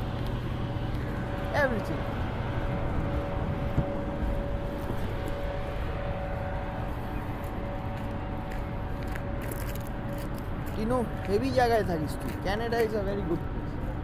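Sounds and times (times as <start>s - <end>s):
constant mechanical hum: 0.0s - 14.0s
low street rumble: 0.0s - 14.0s.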